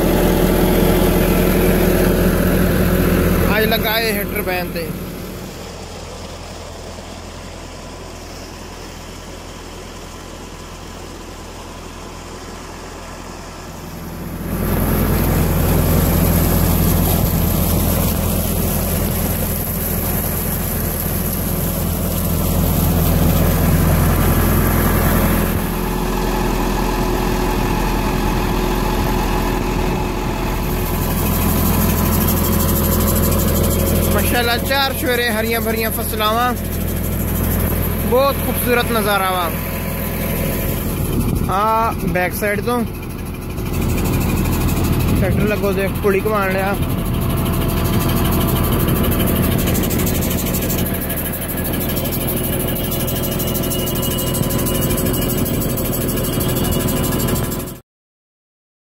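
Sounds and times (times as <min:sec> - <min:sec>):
tractor diesel engine under load: 0:00.0 - 0:57.8
water gushing into a tank: 0:14.0 - 0:29.6, 0:30.4 - 0:41.1, 0:43.5 - 0:53.8.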